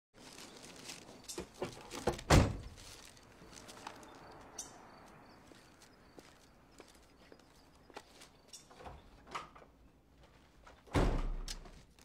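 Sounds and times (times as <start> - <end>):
car door slamming shut: 2.0 - 2.7.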